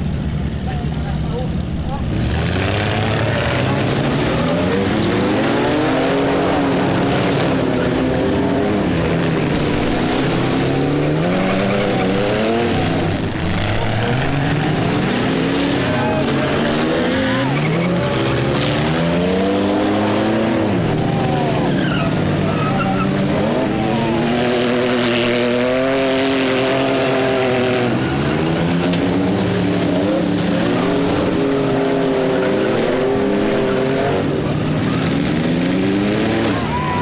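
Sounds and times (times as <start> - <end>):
car engines revving hard: 0.0 - 37.0.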